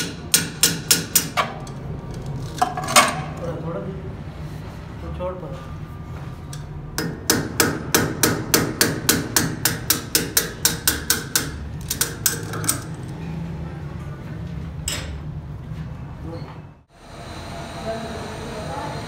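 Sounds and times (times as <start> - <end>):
steel bar tapping on metal bearing: 7.0 - 12.7.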